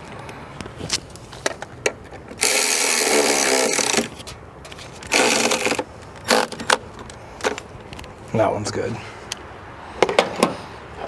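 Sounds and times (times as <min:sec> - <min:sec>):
electric ratchet spinning: 0:02.4 - 0:04.2, 0:05.1 - 0:06.5.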